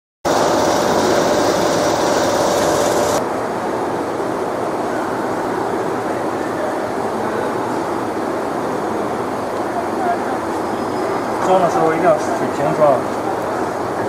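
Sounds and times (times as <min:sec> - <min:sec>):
machinery hum and rumble: 0:00.3 - 0:04.6.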